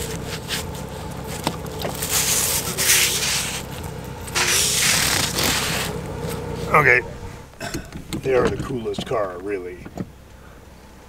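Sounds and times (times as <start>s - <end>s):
dry leaves rustling and scraping: 0.0s - 7.4s
steady low hum: 0.0s - 11.0s.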